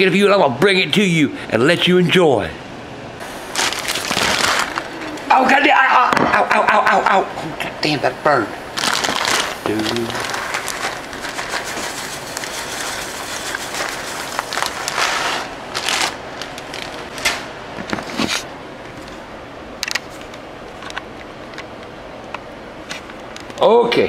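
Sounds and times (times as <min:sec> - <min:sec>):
plastic bag crinkling: 0:03.4 - 0:05.3, 0:08.7 - 0:17.3.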